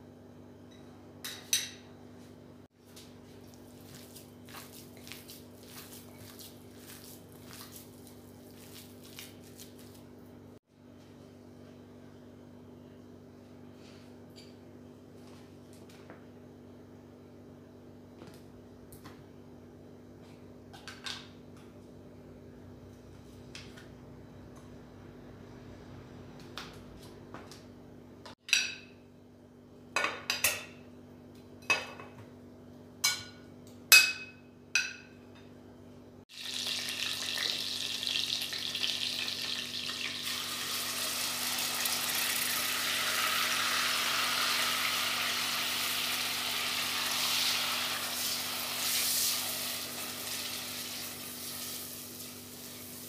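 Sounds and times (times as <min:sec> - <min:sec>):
chicken sizzling in oil: 0:36.3 - 0:53.0.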